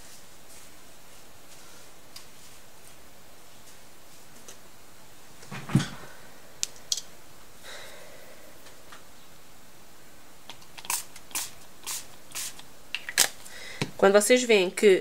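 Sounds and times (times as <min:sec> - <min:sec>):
spray bottle squirts: 0:10.8 - 0:12.6.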